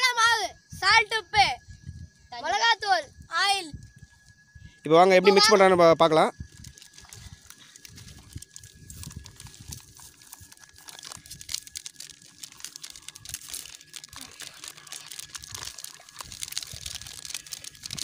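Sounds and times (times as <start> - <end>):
plastic sachets crinkling: 6.5 - 18.0.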